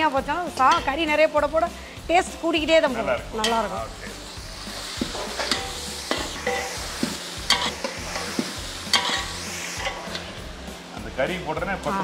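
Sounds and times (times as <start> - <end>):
meat sizzling in a pot: 0.0 - 12.0
metal ladle scraping a pot: 5.0 - 10.4.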